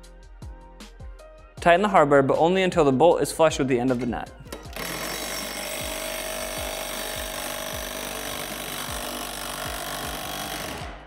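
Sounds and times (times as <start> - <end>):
ratcheting wrench rasping: 4.5 - 10.9.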